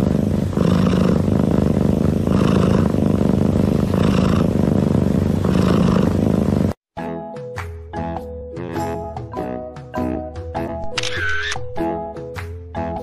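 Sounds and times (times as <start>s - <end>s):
cat breathing rumbling: 0.0s - 6.8s.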